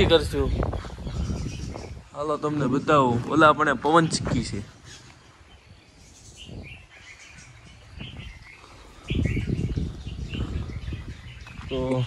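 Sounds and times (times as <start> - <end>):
low rumble on microphone: 0.0 - 2.1, 6.1 - 11.9
small birds chirping: 0.0 - 12.0.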